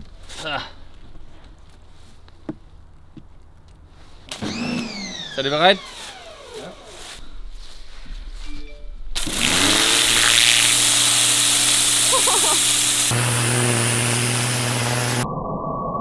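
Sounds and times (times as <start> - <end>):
pressure washer motor humming: 4.3 - 7.2, 9.2 - 15.2
water jet hissing: 9.2 - 15.2.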